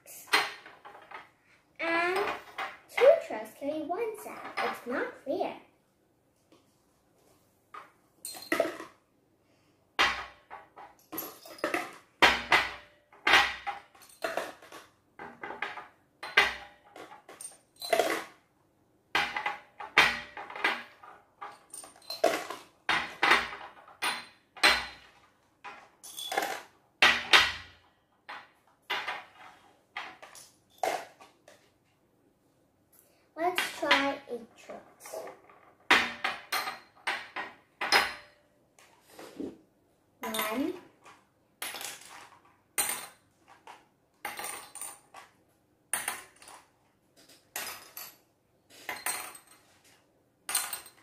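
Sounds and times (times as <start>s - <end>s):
glass jars and cups clinking: 21.5s - 25.0s.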